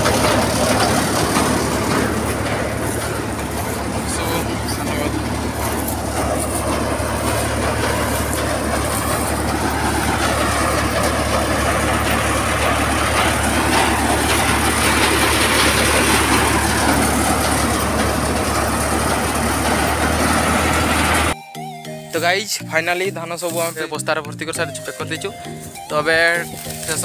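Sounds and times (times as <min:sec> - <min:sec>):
low engine hum: 0:00.0 - 0:21.4
thresher mechanical din: 0:00.0 - 0:21.4.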